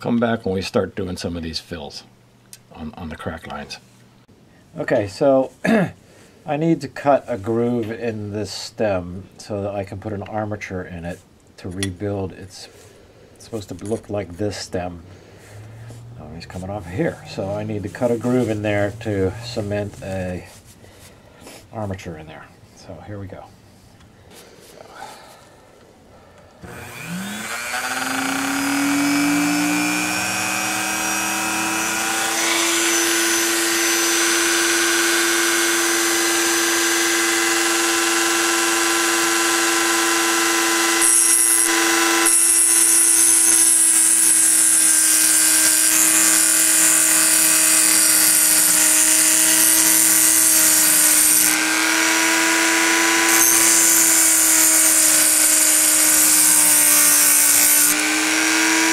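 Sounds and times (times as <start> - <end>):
disc grinding porcelain: 26.6 - 58.9
rotary tool whine: 26.6 - 58.9.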